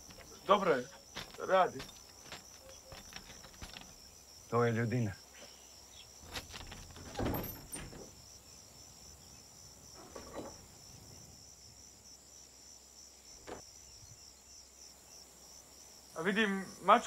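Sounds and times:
insects chirring: 0.0 - 17.0
soft knocks and thumps: 1.1 - 4.0, 6.2 - 8.1, 10.0 - 10.6.

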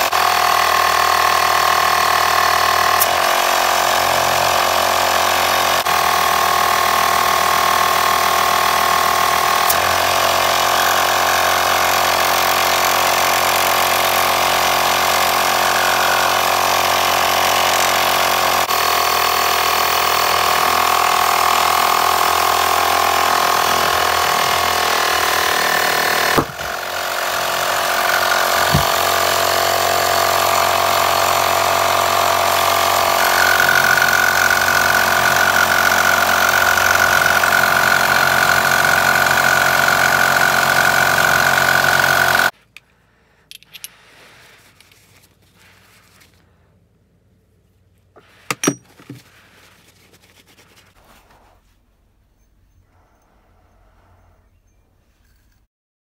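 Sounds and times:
portable air compressor running: 0.0 - 42.8, 48.1 - 50.0.

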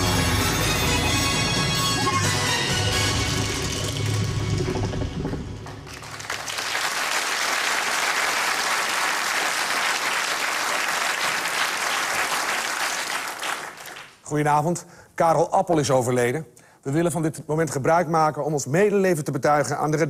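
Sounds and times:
theme music: 0.0 - 6.5
studio audience applauding: 3.0 - 4.7, 5.6 - 14.2.

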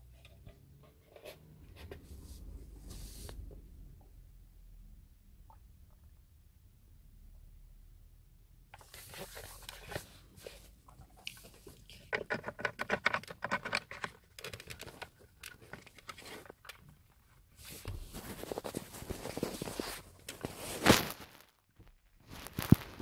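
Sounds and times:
rustling: 0.9 - 3.5, 8.8 - 23.0
plastic clicks taps and scrapes: 11.2 - 16.9.

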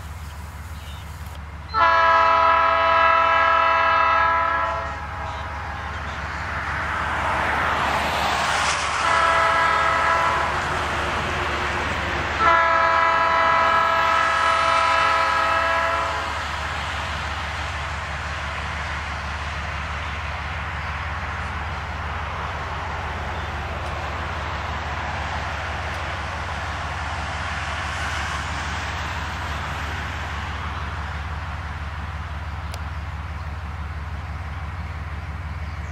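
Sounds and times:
locomotive engine rumbling: 0.0 - 35.9
train wheels rumbling: 0.0 - 35.9
locomotive air horn blasts: 1.7 - 5.5, 8.9 - 10.6, 12.4 - 16.4.

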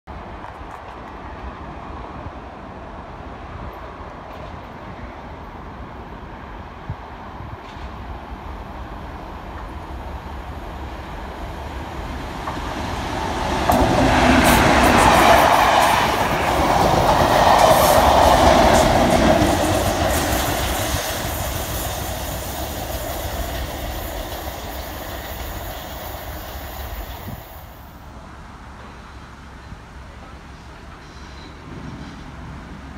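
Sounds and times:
train rumble: 0.1 - 32.9
diesel locomotive engine: 0.2 - 32.9.

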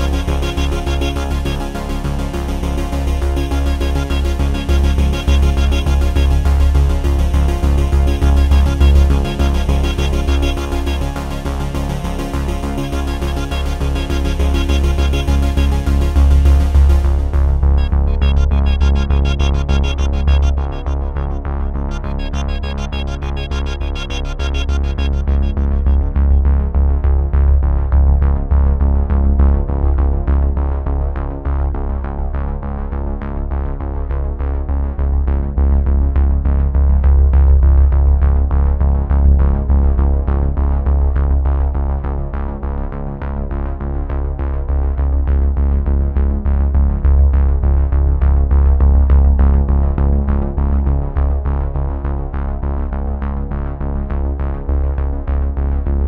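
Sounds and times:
electronic music with heavy bass: 0.0 - 31.0.

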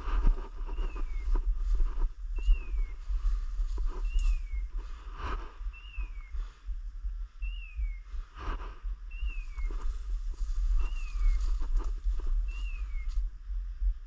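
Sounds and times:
footsteps crunching dry leaves: 0.0 - 5.0, 9.7 - 13.2
low wind rumble: 0.0 - 14.0.

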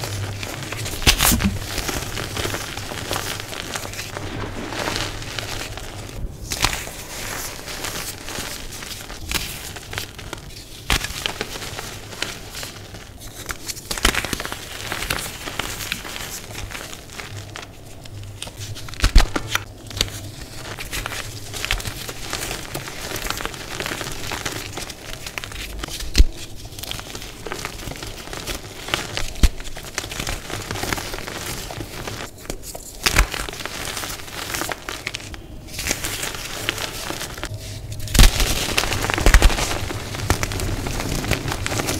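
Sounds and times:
hands crunching chalk blocks: 18.4 - 41.9.

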